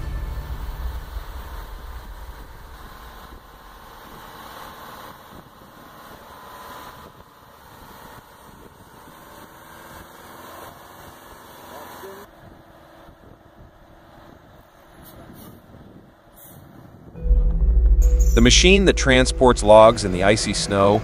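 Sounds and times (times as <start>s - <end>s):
background music: 0.0s - 2.2s, 17.2s - 21.0s
vehicle engine running: 0.0s - 12.3s, 17.2s - 21.0s.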